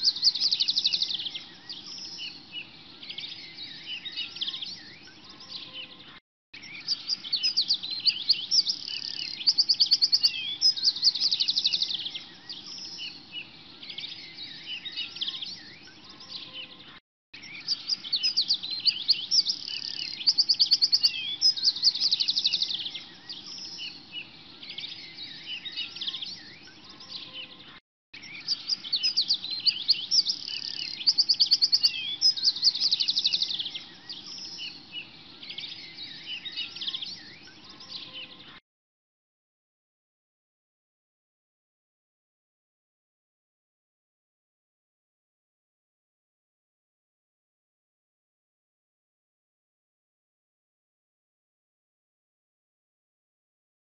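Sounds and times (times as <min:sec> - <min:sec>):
bird trill: 0:00.0 - 0:38.6
small birds chirping and whistling: 0:00.0 - 0:38.6.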